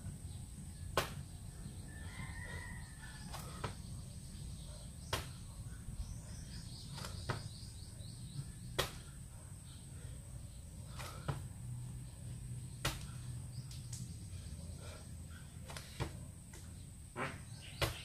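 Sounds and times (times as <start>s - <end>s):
hands and feet slapping floor: 12.8s - 14.1s, 15.7s - 16.7s.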